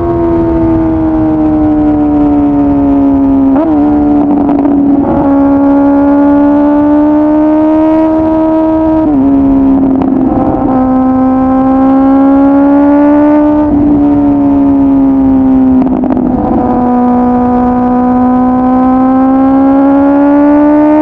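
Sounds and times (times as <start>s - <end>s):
motorcycle engine at high revs: 0.0s - 21.0s
wind noise: 0.0s - 21.0s.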